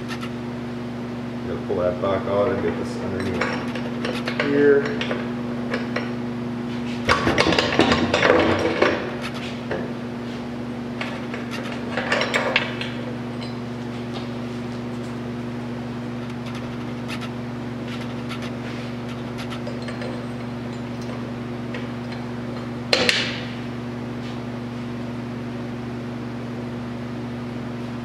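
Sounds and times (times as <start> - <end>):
steady low hum: 0.0 - 28.0
metal parts clinking and knocking: 11.6 - 13.6, 19.1 - 21.2.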